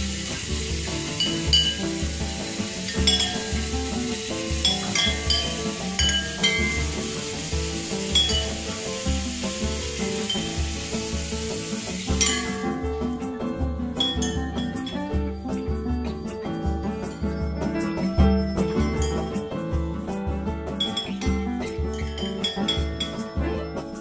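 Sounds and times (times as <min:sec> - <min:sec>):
water rushing in a tub: 0:00.0 - 0:13.2
background music with beat: 0:00.0 - 0:24.0
porcelain bowls clinking: 0:01.2 - 0:01.9, 0:02.9 - 0:03.7, 0:04.5 - 0:06.9, 0:12.2 - 0:12.8, 0:20.8 - 0:23.4.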